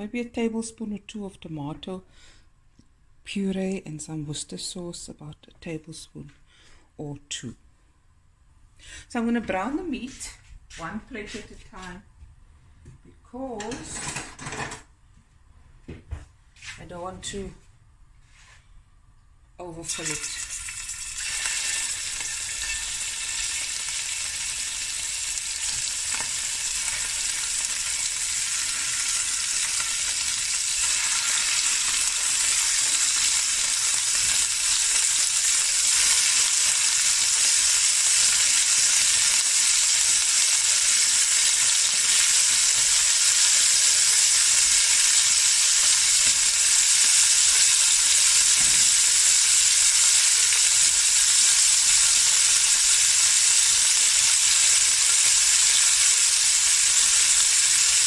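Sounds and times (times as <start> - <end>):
meat sizzling in hot oil: 19.9 - 58.0.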